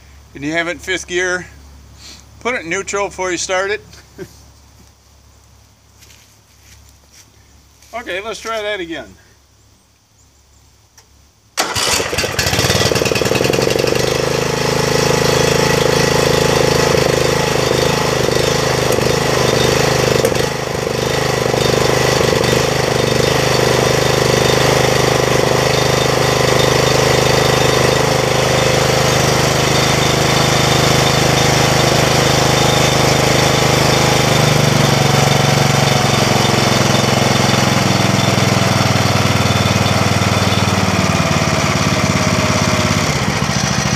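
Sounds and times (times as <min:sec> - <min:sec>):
electric starter cranking engine: 0:11.6 - 0:43.9
riding mower engine running: 0:11.6 - 0:43.9.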